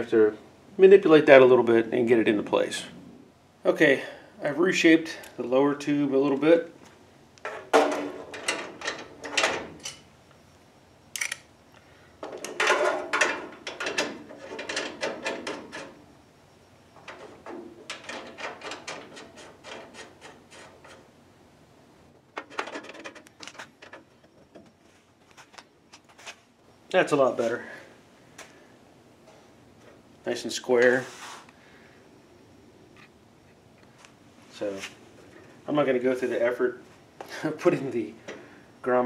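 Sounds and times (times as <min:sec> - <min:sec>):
metal scraping and clicking on metal: 0:17.9 - 0:21.1.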